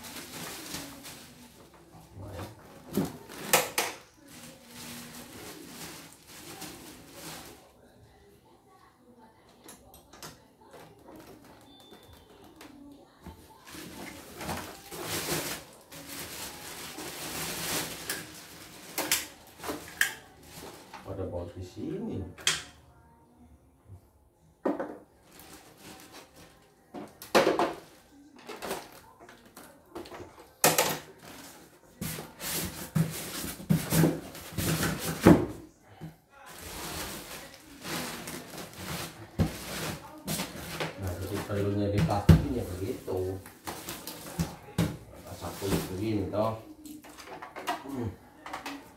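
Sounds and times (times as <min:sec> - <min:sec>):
plastic wrapping crinkling: 0:00.0 - 0:07.7, 0:13.4 - 0:21.2, 0:25.2 - 0:35.4, 0:36.4 - 0:47.3.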